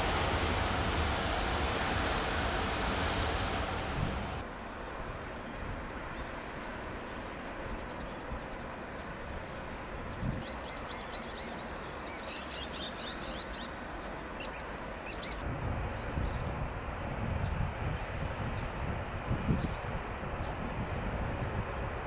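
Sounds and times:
low rumble: 0.0 - 4.4.

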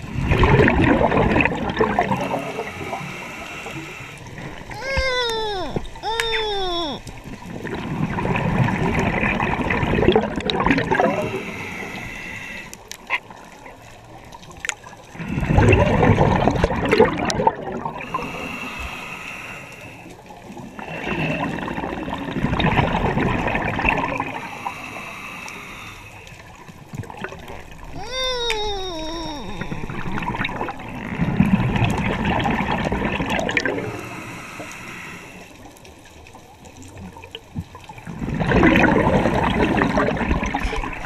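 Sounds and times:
gurgling exhaled bubbles: 0.0 - 12.6, 13.2 - 19.1, 20.1 - 41.0
hissing regulator inhalations: 2.0 - 7.0, 11.0 - 12.8, 18.0 - 20.1, 24.3 - 26.4, 33.8 - 35.6.

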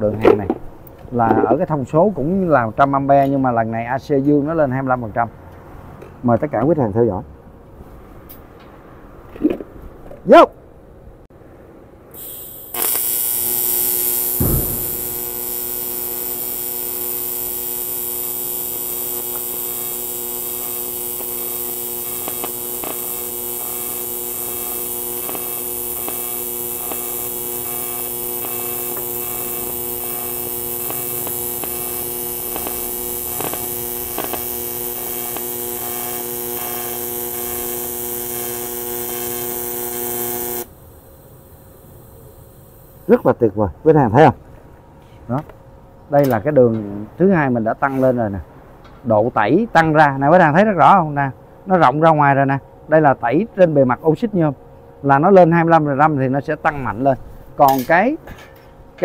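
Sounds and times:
welding arc buzzing: 12.1 - 43.3.

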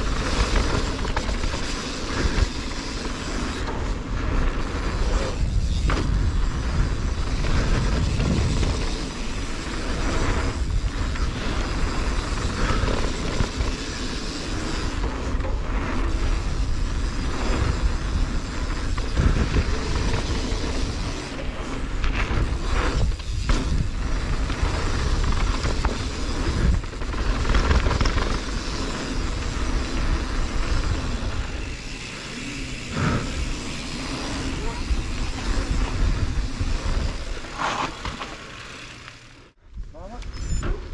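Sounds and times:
bike tyres rumbling on dirt: 0.0 - 39.7
wind buffeting microphone: 3.8 - 14.0, 15.6 - 37.6.

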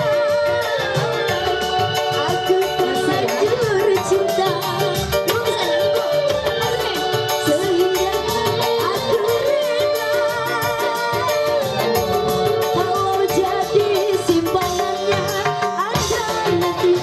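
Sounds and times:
electric guitar: 0.0 - 17.0
hand drums: 0.0 - 17.0
keyboard: 0.0 - 17.0
woman singing into microphone: 0.0 - 17.0.

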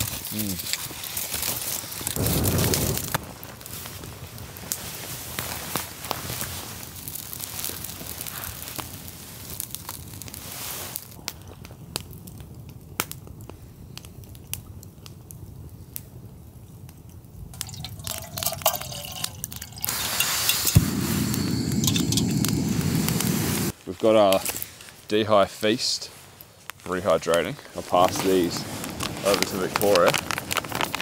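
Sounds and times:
campfire crackling: 0.0 - 31.0
water pouring into pouch: 17.6 - 22.4.

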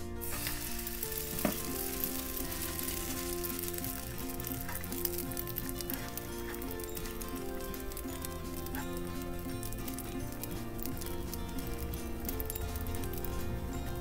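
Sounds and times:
bread sizzling in hot fat: 0.0 - 14.0.

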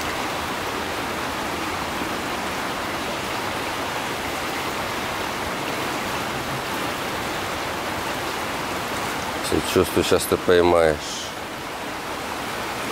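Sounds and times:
river water rushing: 0.0 - 12.9.

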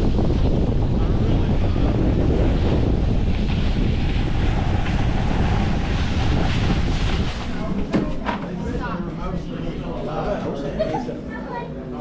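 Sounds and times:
rush of sliding over snow: 0.0 - 8.2
wind buffeting microphone: 0.0 - 9.4.

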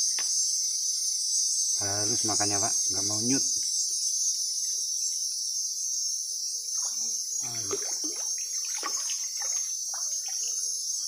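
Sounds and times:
insect chorus: 0.0 - 11.0
fish splashing water: 7.5 - 10.5.

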